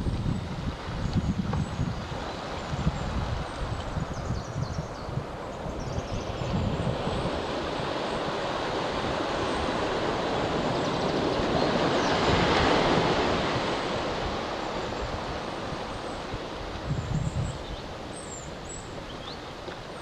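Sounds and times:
ocean surf on beach: 0.0 - 20.0
wind buffeting microphone: 0.0 - 20.0.

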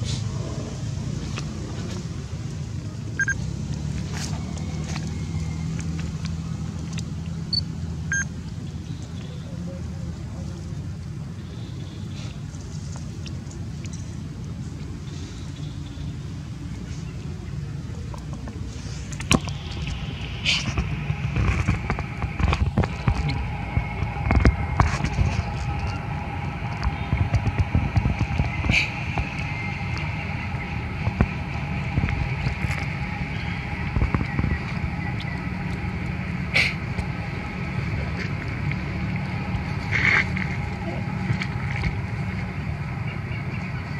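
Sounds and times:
low outdoor rumble: 0.0 - 43.9
steady high buzz: 19.2 - 43.9.

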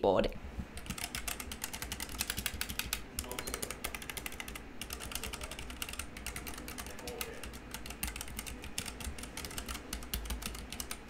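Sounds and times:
mechanical keyboard typing: 0.8 - 11.0.

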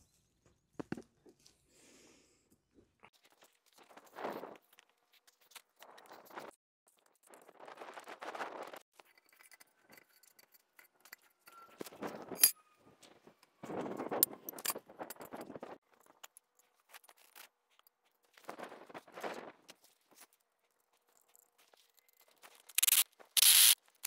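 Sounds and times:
metal clinks and scrapes: 9.0 - 17.5.

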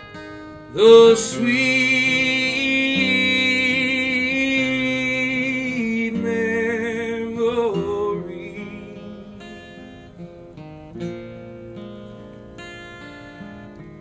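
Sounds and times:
acoustic guitar notes: 0.0 - 14.0
man singing with vibrato: 0.7 - 10.2.

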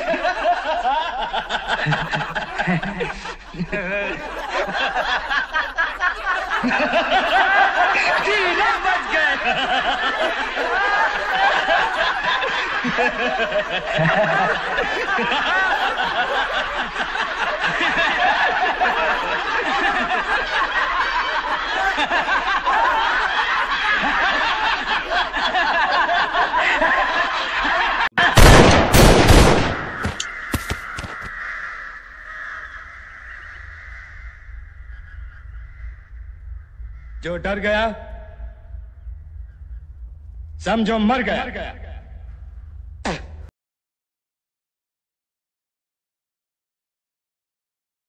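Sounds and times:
men laughing loudly: 0.0 - 31.3
loud pistol shots: 28.4 - 30.8.

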